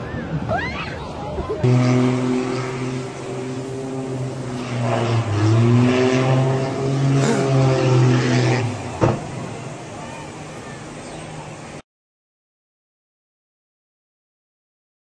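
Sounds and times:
aircraft engine droning: 1.6s - 11.8s.

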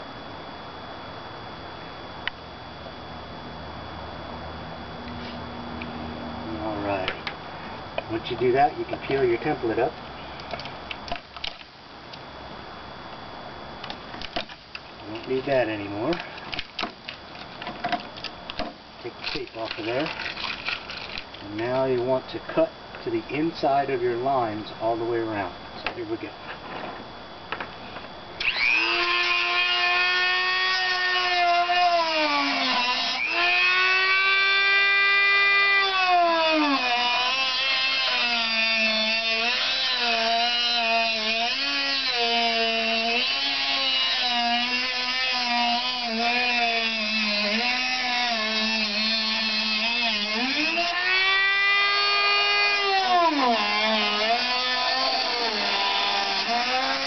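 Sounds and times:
rotary tool whining: 13.8s - 23.1s, 27.8s - 57.0s.

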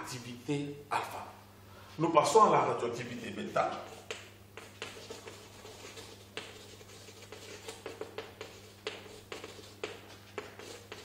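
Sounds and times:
steady low hum: 0.0s - 11.0s
chalk tapping and scraping blackboard: 3.5s - 11.0s.

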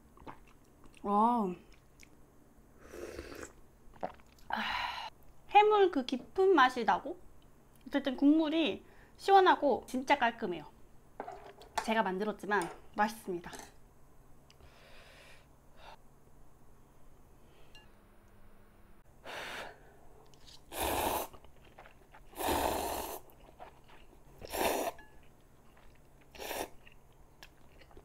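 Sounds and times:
person slurping noodles: 2.8s - 4.2s, 20.4s - 23.8s, 24.4s - 25.0s, 26.3s - 26.8s.

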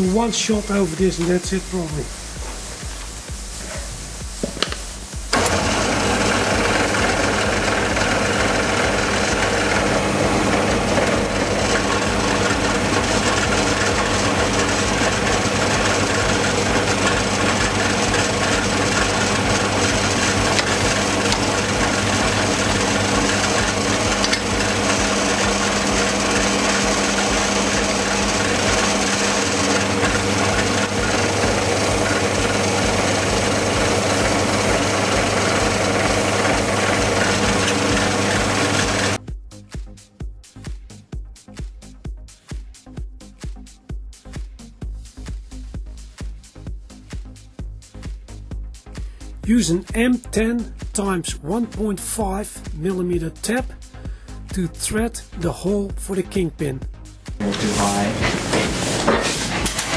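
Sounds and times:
milling machine motor and spindle: 5.3s - 39.2s, 57.4s - 59.9s
cutter scraping metal: 8.4s - 39.2s, 57.4s - 59.9s.

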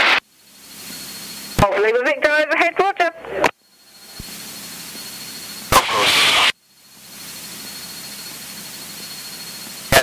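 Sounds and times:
headset radio hiss: 0.0s - 0.2s, 1.6s - 4.6s, 5.6s - 7.7s
short radio transmission burst: 5.7s - 6.6s.

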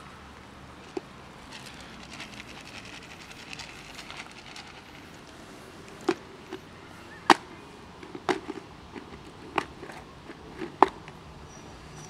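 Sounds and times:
light rustling: 0.8s - 6.7s.

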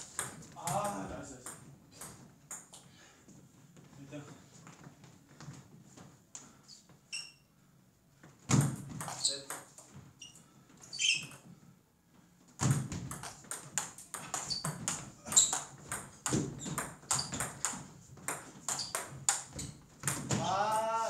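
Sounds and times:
table tennis ball hits: 8.5s - 9.8s, 12.6s - 20.6s.

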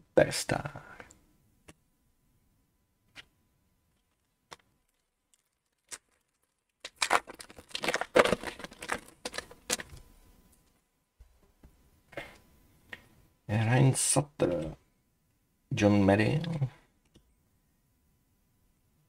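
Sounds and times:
foil wrapper crinkling and tearing: 4.0s - 10.0s.

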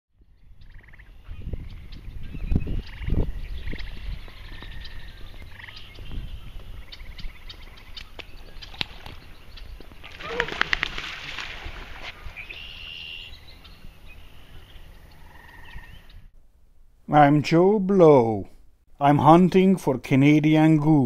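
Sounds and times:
marsh wildlife trills and chirps: 0.3s - 11.0s, 12.0s - 16.3s.

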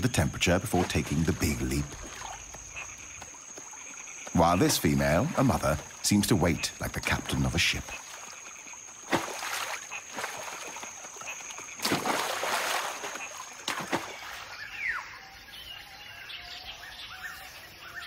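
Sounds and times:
water splashing: 0.0s - 14.6s
high insect tone: 0.0s - 18.0s
bird chirps: 14.1s - 18.0s.

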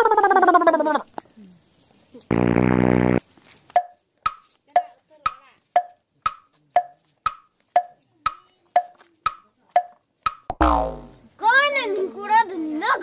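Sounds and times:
wood block knocking: 3.8s - 11.1s.

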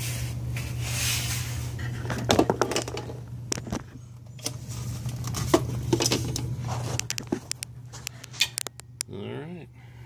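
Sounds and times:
steady low hum: 0.0s - 10.0s
phone handling rustling and clicks: 4.4s - 9.0s.

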